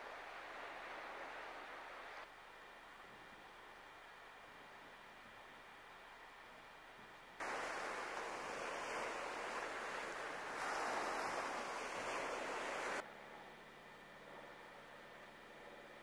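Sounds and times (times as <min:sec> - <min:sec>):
wind and sea rushing: 0:00.0 - 0:02.2, 0:07.4 - 0:13.0.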